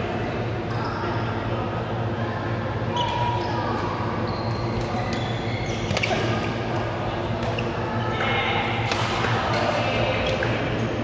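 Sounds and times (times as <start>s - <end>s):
rackets hitting shuttlecock: 8.8s - 10.5s.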